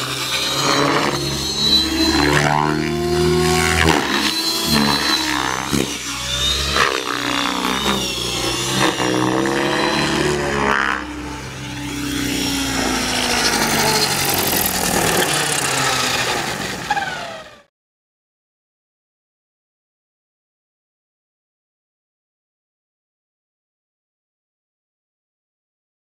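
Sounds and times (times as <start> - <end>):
model helicopter motor whine: 0.0 - 17.7.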